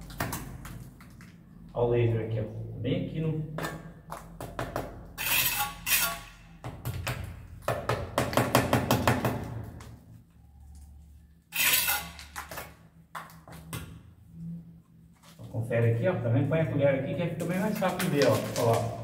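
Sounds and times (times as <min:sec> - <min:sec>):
trowel scraping wet mortar: 0:11.6 - 0:12.1.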